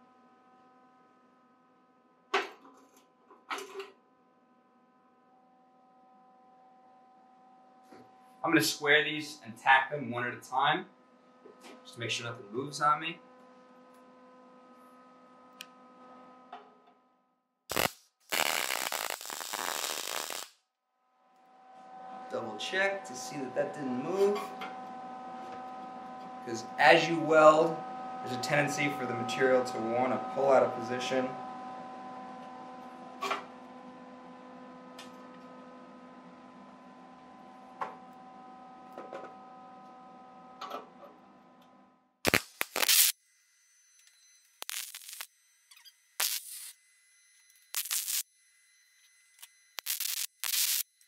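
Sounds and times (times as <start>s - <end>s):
steady electrical hum: 17.7s - 20.5s, 44.6s - 50.9s
welder arc crackling: 17.7s - 20.6s, 42.2s - 43.2s, 44.4s - 45.3s, 46.2s - 46.8s, 47.5s - 48.3s, 49.4s - 50.9s.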